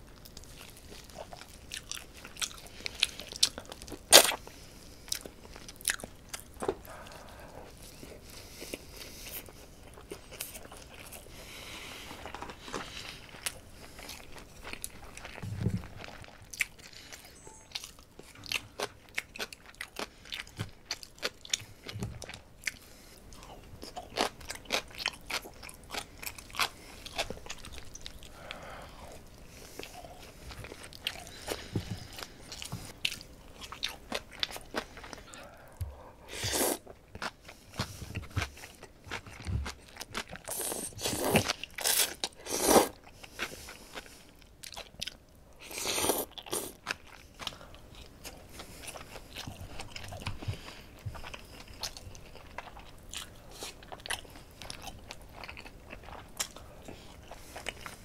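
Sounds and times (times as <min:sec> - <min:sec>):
person chewing: 0:00.2 - 0:11.4, 0:12.0 - 0:58.0
slurping noodles: 0:36.3 - 0:36.8, 0:40.5 - 0:43.0, 0:45.7 - 0:46.8.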